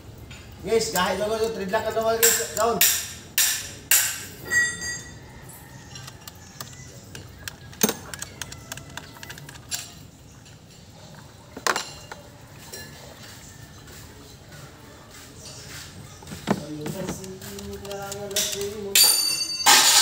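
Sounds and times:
connectors clicking and clinking: 2.2 - 12.3, 16.0 - 20.0.

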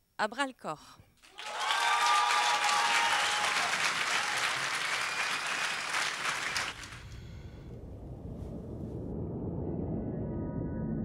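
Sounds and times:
audience applauding: 1.2 - 7.2
low rumble: 6.8 - 11.0.

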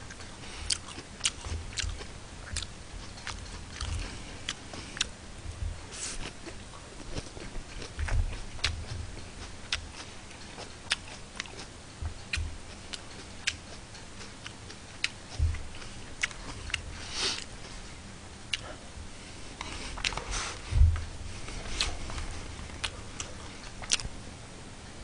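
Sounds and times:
person chewing: 0.0 - 5.2, 5.8 - 17.9, 18.5 - 18.8, 19.6 - 24.1
low thumps: 20.6 - 22.6.

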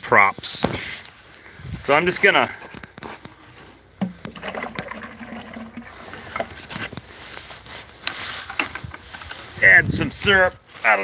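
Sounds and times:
bucket knocking and clattering: 4.0 - 6.8
syrup sloshing in plastic bucket: 4.0 - 7.0.

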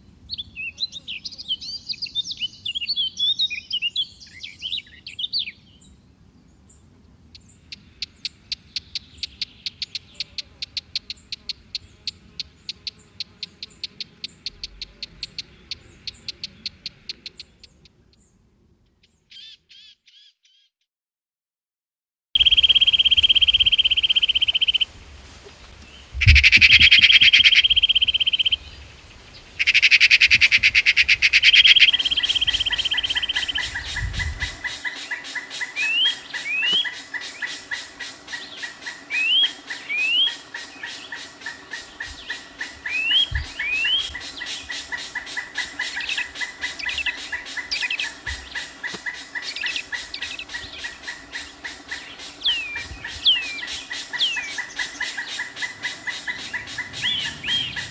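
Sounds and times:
harsh bird calls: 22.4 - 24.9, 26.0 - 57.9
short rising bird chirps: 29.6 - 57.9.

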